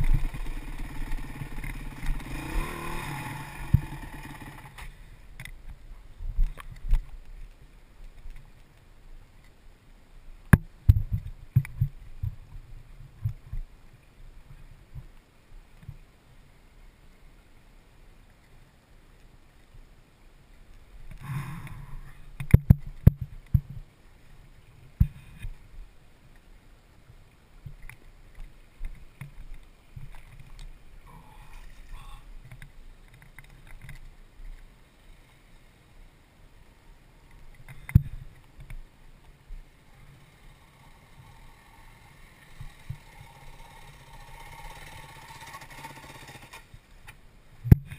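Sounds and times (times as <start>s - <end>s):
faint dirt bike motor hum: 0.0s - 7.8s, 27.7s - 35.8s, 36.6s - 47.9s
creek water running over rocks: 0.0s - 47.9s.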